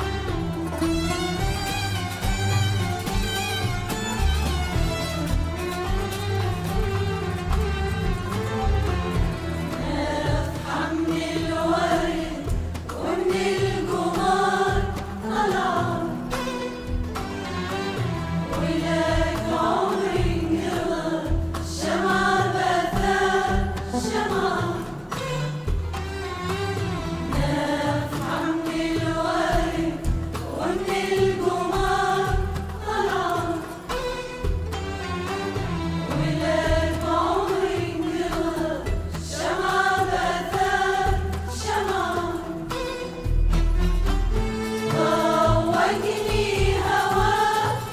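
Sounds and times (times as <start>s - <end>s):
bowed strings: 0.0s - 47.9s
frame drum beat: 0.0s - 47.9s
instrumental accompaniment: 0.0s - 47.9s
oud: 0.0s - 47.9s
qanun: 0.0s - 47.9s
women's choir singing: 8.1s - 25.8s, 26.8s - 34.0s, 36.0s - 43.0s, 44.8s - 47.9s.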